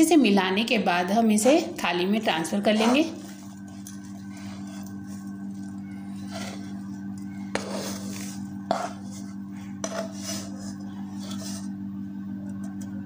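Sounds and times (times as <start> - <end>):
metal spoon scraping steel pan: 1.3 - 5.2, 6.1 - 6.8, 7.4 - 11.7.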